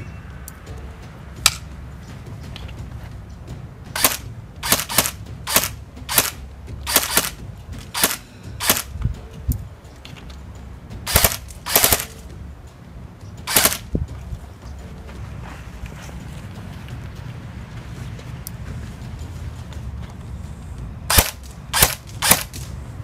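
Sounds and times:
airsoft rifle shots: 4.0s - 8.9s, 11.1s - 12.2s, 13.5s - 13.9s, 21.1s - 22.6s.

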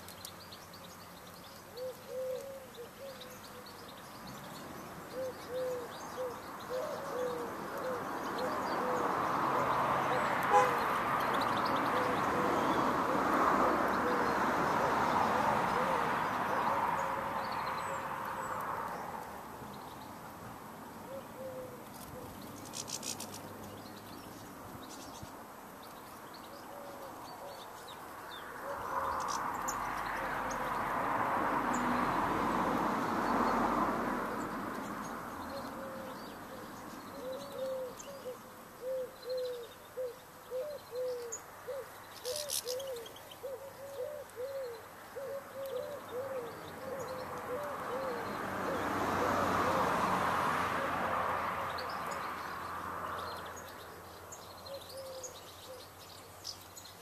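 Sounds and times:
small birds chirping: 0.0s - 49.2s, 51.6s - 57.0s
pigeon cooing: 1.7s - 3.3s, 5.1s - 9.1s, 15.4s - 17.3s, 21.1s - 22.4s, 35.6s - 50.0s, 54.7s - 55.8s.

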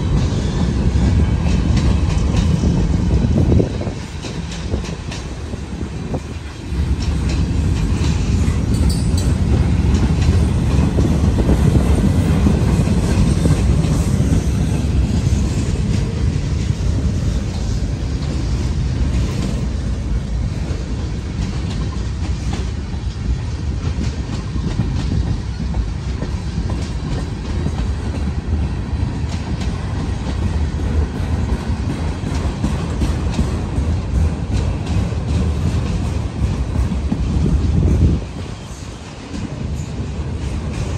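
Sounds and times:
train wheels rumbling on rail: 0.0s - 40.9s.

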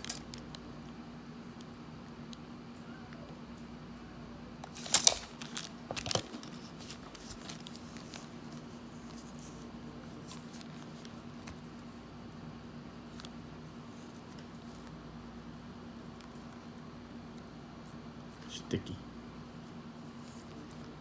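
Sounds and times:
plastic packaging crinkling: 0.0s - 0.6s, 4.6s - 11.3s.

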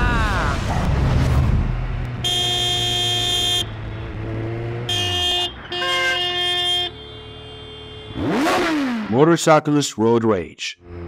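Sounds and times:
vehicle horn honking: 2.2s - 3.8s, 4.8s - 8.8s.

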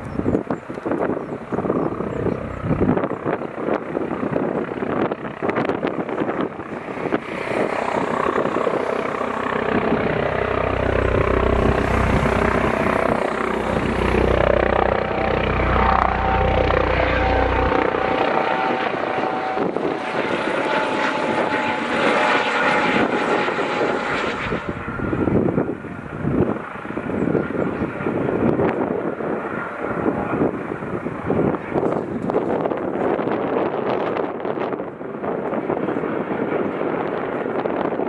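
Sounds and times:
steady whine: 0.0s - 29.0s
helicopter flying past: 0.0s - 38.0s
wind rumbling on microphone: 0.0s - 38.0s.

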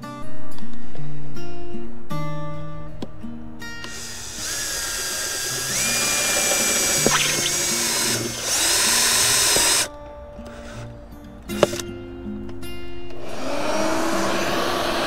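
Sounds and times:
cordless drill boring through plastic: 3.8s - 10.9s, 11.5s - 11.8s.

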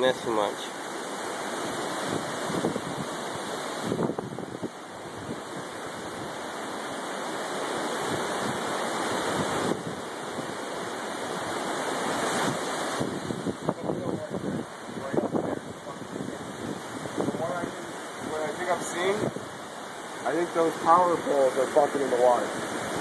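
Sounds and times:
river rushing: 0.0s - 23.0s.

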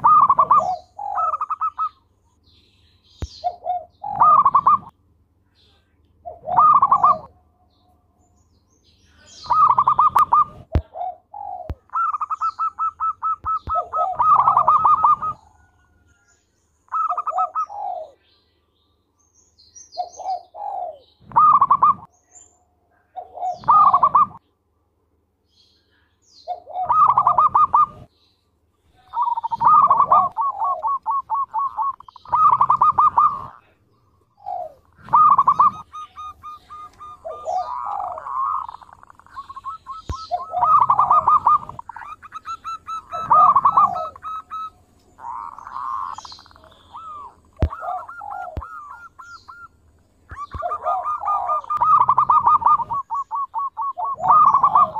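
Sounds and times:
dove cooing: 0.0s - 2.0s, 3.2s - 4.9s, 6.2s - 7.4s, 9.2s - 16.0s, 16.9s - 18.2s, 20.0s - 22.1s, 23.1s - 24.4s, 26.4s - 28.1s, 28.9s - 54.9s.

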